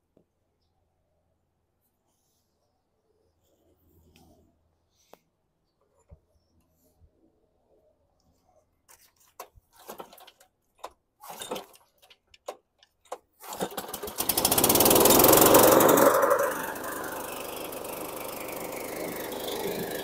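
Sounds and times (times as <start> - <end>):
recoil starter rattles and pops: 9.4 - 20.0
lawn mower engine running: 13.1 - 20.0.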